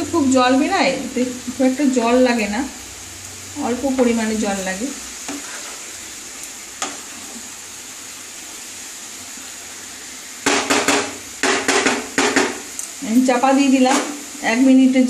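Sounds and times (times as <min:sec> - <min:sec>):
food sizzling in a pan: 0:00.0 - 0:15.0
wooden spatula tapping pan: 0:10.4 - 0:12.7.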